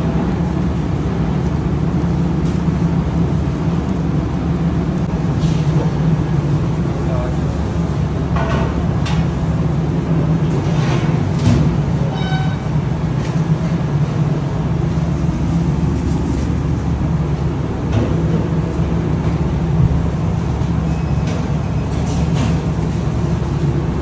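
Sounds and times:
kitchen machinery hum: 0:00.0 - 0:24.0.

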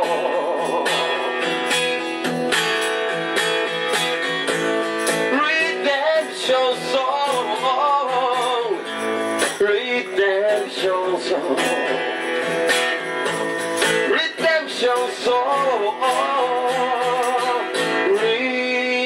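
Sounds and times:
man singing: 0:00.0 - 0:01.7, 0:05.2 - 0:12.3, 0:13.8 - 0:19.0
acoustic guitar strumming: 0:00.0 - 0:19.0.

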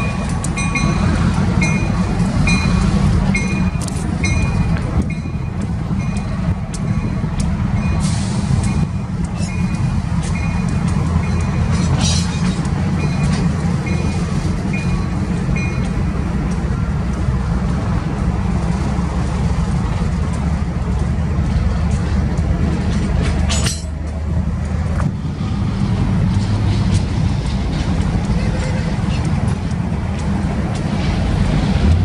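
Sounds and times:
locomotive bell ringing: 0:00.0 - 0:16.9
diesel locomotive engine rumble: 0:00.0 - 0:32.0.

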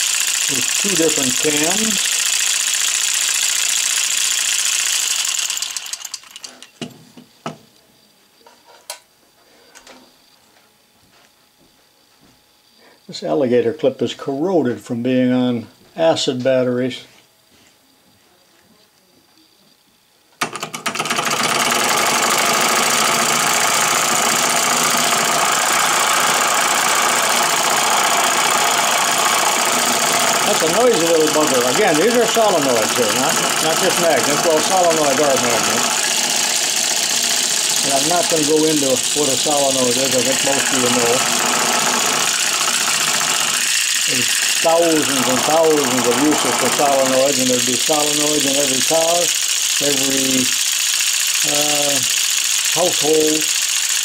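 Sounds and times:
model engine rapid clatter: 0:00.0 - 0:06.7, 0:20.4 - 0:54.0.

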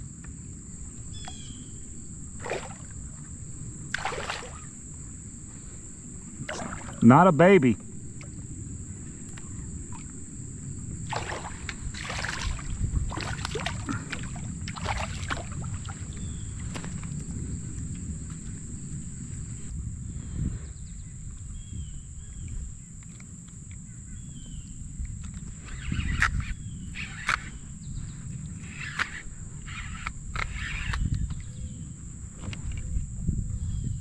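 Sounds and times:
fish splashing at surface: 0:02.4 - 0:02.9, 0:03.9 - 0:04.7, 0:06.4 - 0:07.0, 0:11.1 - 0:16.0.

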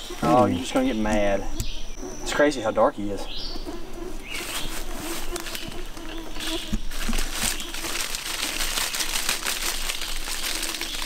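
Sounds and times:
dry leaves rustling and crackling: 0:04.4 - 0:11.0.

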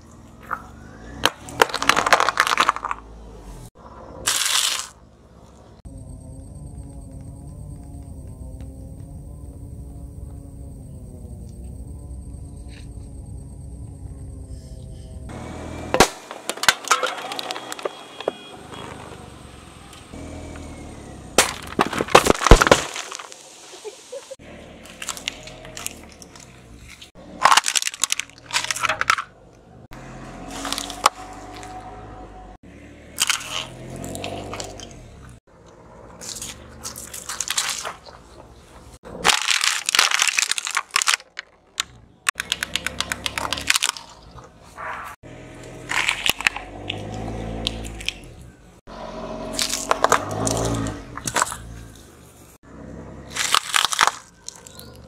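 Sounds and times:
drink cans crumpling under tyre: 0:01.2 - 0:03.0, 0:16.0 - 0:19.1, 0:21.4 - 0:23.5, 0:24.8 - 0:29.3, 0:30.5 - 0:31.7, 0:36.2 - 0:38.4, 0:39.1 - 0:44.5, 0:45.9 - 0:48.2, 0:53.3 - 0:55.0
plastic items snapping: 0:01.2 - 0:03.0, 0:21.4 - 0:23.4, 0:27.4 - 0:29.3, 0:39.1 - 0:44.4, 0:45.8 - 0:48.3, 0:53.3 - 0:55.0.

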